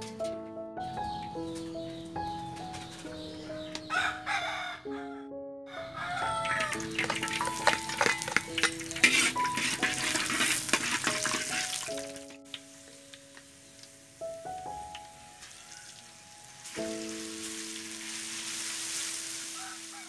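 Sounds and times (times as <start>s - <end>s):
background melody: 0.0s - 20.0s
rooster crowing: 3.8s - 7.2s, 15.2s - 16.4s, 19.4s - 20.0s
shallots sizzling in hot oil: 6.6s - 20.0s
spatula stirring in wok: 6.9s - 12.0s.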